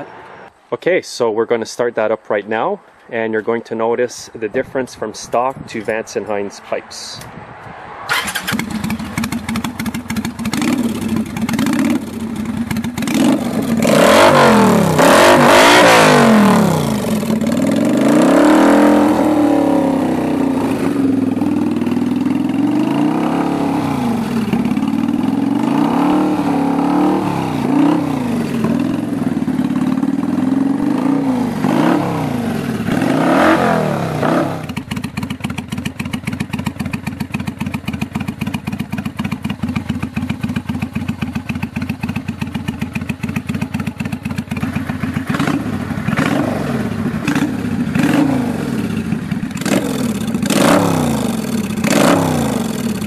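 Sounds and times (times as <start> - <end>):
motorcycle engine revving: 8.0 - 53.0
motorcycle engine idling: 8.1 - 13.9, 16.2 - 18.1, 19.1 - 33.1, 34.2 - 53.0.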